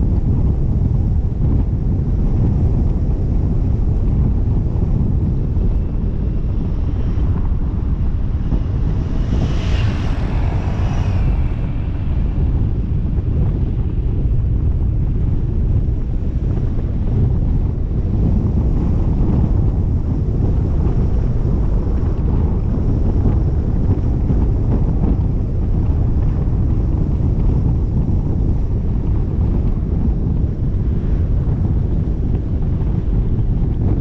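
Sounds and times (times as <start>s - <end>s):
steady low rumble: 0.0s - 34.0s
wind buffeting microphone: 0.0s - 34.0s
hissing whoosh: 5.5s - 14.7s.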